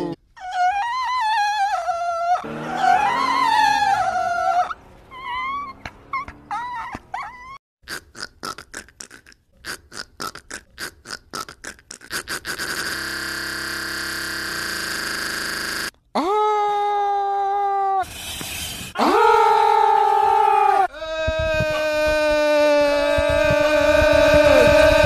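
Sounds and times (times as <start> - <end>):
car tyres squealing: 2.4 - 7.6.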